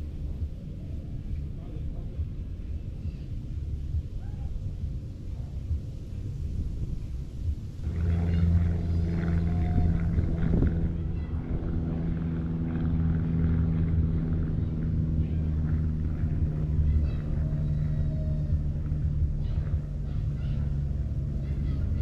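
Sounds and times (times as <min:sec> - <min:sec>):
motor humming: 0:07.8 - 0:22.0.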